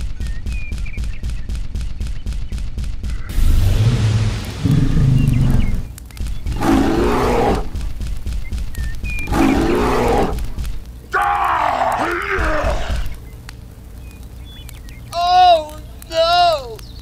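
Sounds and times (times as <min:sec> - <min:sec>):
fire-breath blast rumble: 0:03.3 - 0:05.9
creature roars: 0:06.6 - 0:07.7, 0:09.3 - 0:10.4.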